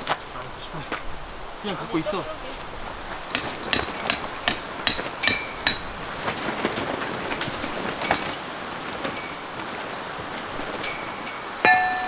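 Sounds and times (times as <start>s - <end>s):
hammer striking metal: 3.3s - 5.9s, 11.6s - 12.0s.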